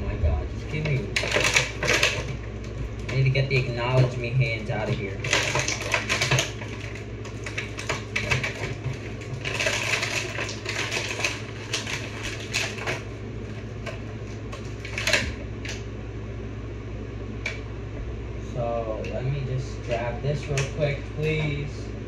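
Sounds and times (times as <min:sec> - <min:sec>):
steady low hum: 0:00.0 - 0:22.0
hard plastic clicking and rustling: 0:00.7 - 0:15.8.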